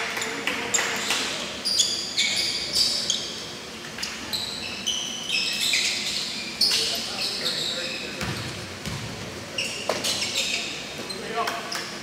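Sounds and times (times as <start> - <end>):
sneakers squeaking: 0.1 - 12.0
basketball bouncing: 8.2 - 9.1.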